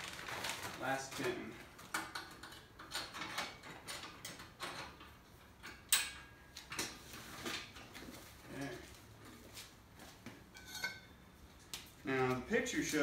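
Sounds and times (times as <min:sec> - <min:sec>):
metal clicks and clunks: 0:01.9 - 0:07.0.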